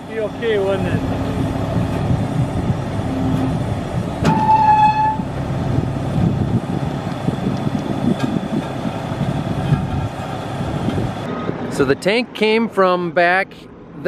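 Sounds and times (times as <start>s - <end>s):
diesel engines idling: 0.0s - 14.0s
brief horn tone: 4.3s - 5.3s.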